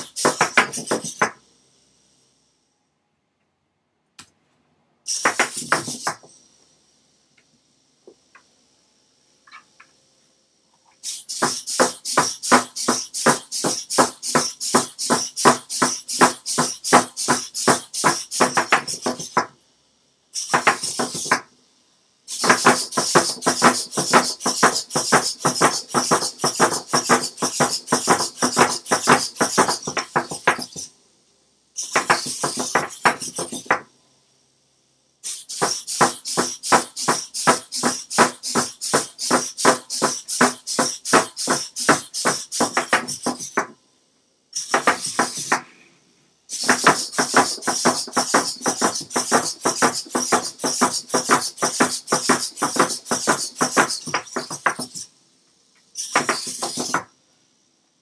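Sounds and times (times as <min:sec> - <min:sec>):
robot legs clattering: 0:00.0 - 0:01.4, 0:05.1 - 0:06.2, 0:11.0 - 0:19.5, 0:20.4 - 0:21.4, 0:22.3 - 0:30.9, 0:31.8 - 0:33.8, 0:35.3 - 0:43.7, 0:44.6 - 0:45.7, 0:46.5 - 0:55.0, 0:56.0 - 0:57.0.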